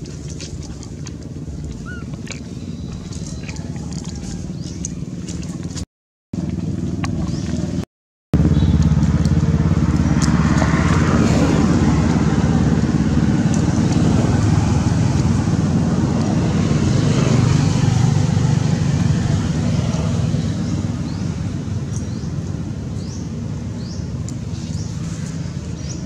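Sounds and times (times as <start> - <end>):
motor engine droning: 0.0 - 5.8, 8.4 - 26.0.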